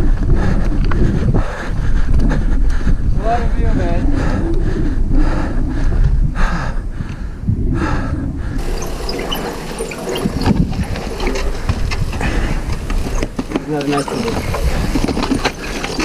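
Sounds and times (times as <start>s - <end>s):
wind buffeting microphone: 0.0s - 16.0s
bike clicks and knocks on rocks: 10.4s - 16.0s.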